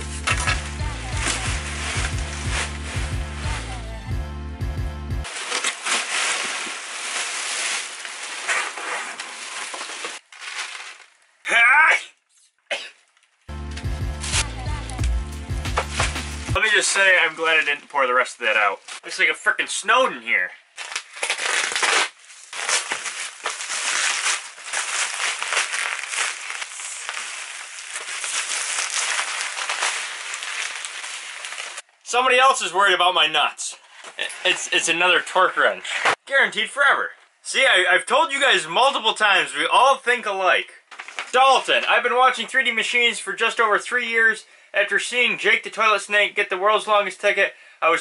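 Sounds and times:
plastic packing and cardboard rustling: 0:00.0 - 0:03.9, 0:05.2 - 0:11.4, 0:13.0 - 0:19.2, 0:20.7 - 0:31.9, 0:33.7 - 0:36.2, 0:40.9 - 0:42.0
bubble wrap crinkling: 0:00.0 - 0:04.0, 0:05.2 - 0:11.4, 0:13.0 - 0:19.1, 0:20.7 - 0:31.9, 0:40.9 - 0:41.5.

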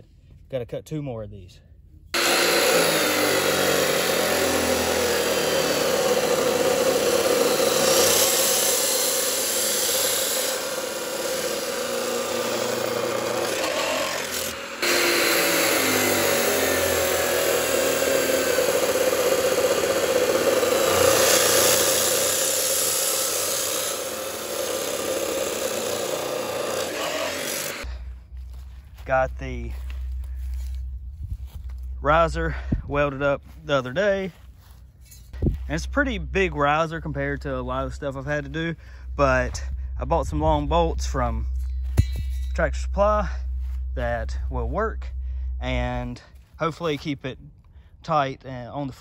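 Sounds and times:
chop saw grinding through steel: 0:02.2 - 0:28.0, 0:35.1 - 0:46.9.

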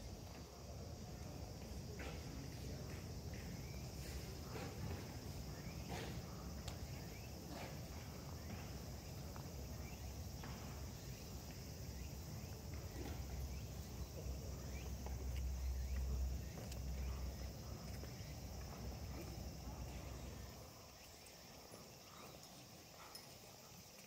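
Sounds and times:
soft footsteps: 0:06.0 - 0:20.6.

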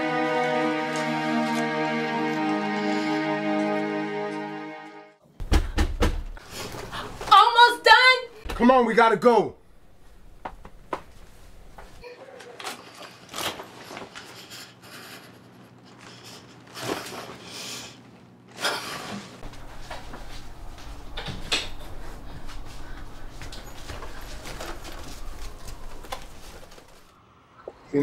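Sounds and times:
low steady hum: 0:09.5 - 0:12.0, 0:19.4 - 0:27.1.

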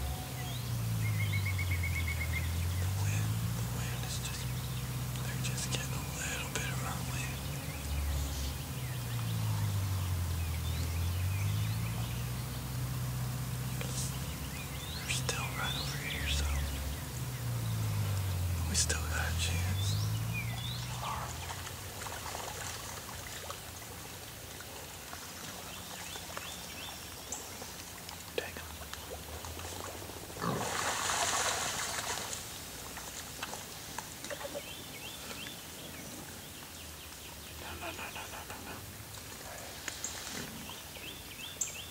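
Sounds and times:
low rumble: 0:00.0 - 0:22.8
small birds chirping: 0:00.0 - 0:30.6, 0:31.4 - 0:41.9.

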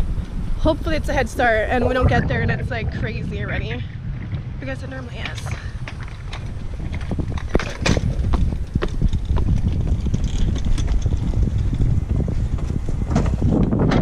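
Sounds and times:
wind buffeting microphone: 0:00.0 - 0:14.0
footsteps: 0:03.4 - 0:13.8.

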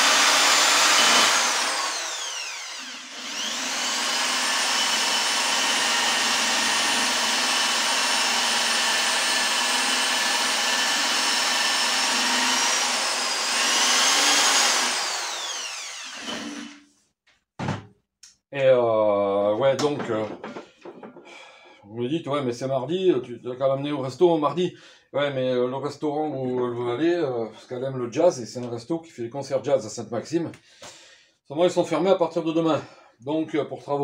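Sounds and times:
electric drill whining: 0:00.0 - 0:16.8.

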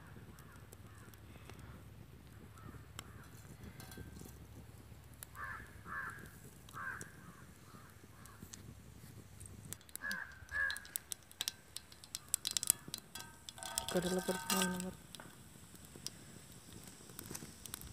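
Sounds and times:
seeds crackling in hot oil: 0:00.0 - 0:17.9
crows cawing: 0:05.3 - 0:08.4, 0:09.9 - 0:11.0.

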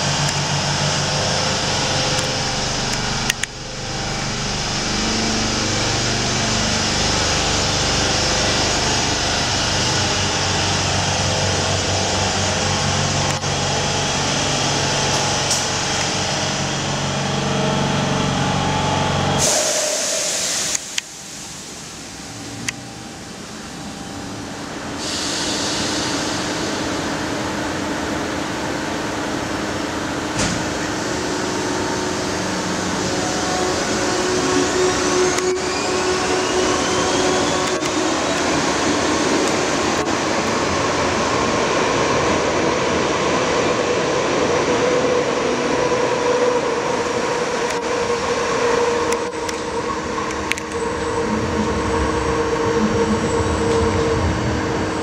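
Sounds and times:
electric train motors whining: 0:00.0 - 0:55.0
train rumble: 0:00.0 - 0:55.0
air hiss: 0:19.4 - 0:22.6, 0:24.9 - 0:27.7.

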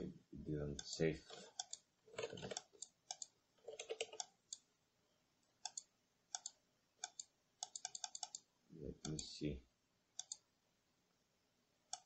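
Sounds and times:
mouse clicks: 0:05.6 - 0:09.2, 0:10.2 - 0:10.4.

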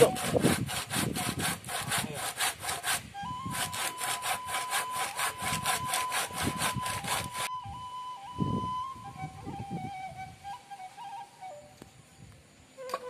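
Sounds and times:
hand saw cutting wood: 0:00.0 - 0:07.5
flute long notes: 0:03.1 - 0:12.0, 0:12.8 - 0:13.0.

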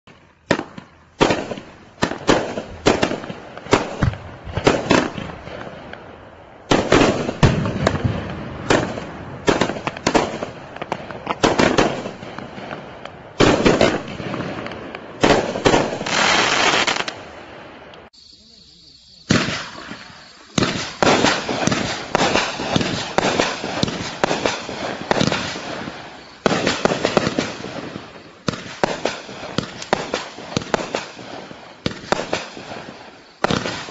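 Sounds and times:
fireworks bursting with crackle: 0:00.1 - 0:33.9
fireworks launch thumps: 0:00.4 - 0:06.0.

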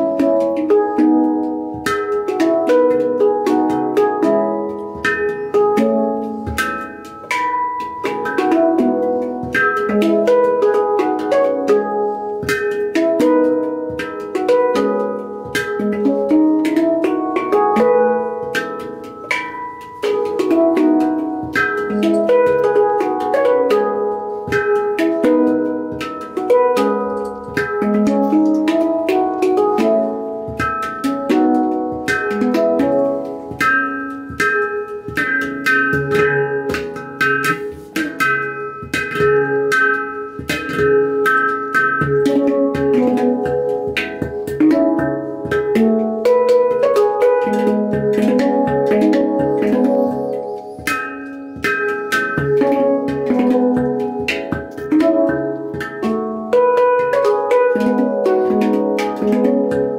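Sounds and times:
handpan melody: 0:00.0 - 0:59.9
percussive finger taps: 0:00.0 - 0:59.9.

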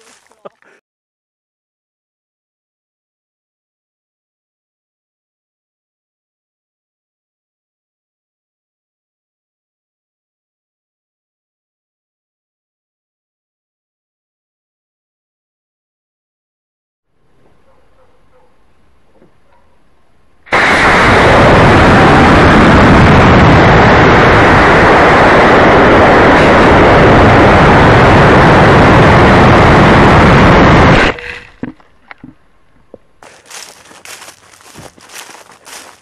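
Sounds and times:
model rocket engines firing: 0:20.5 - 0:31.2.

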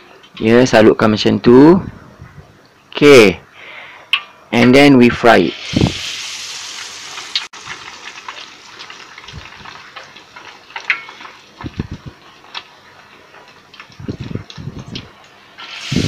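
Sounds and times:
oil sizzling and popping: 0:05.4 - 0:16.0.

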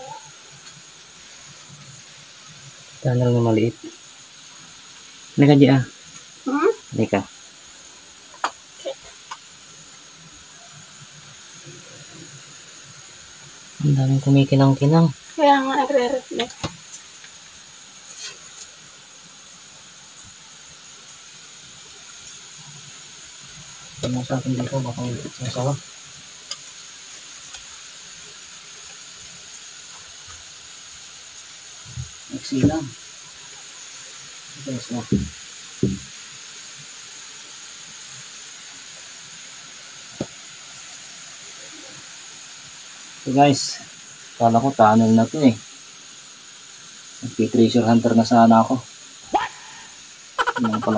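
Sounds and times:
steady hiss: 0:00.0 - 0:50.9
sharp tap: 0:35.1 - 0:36.0.

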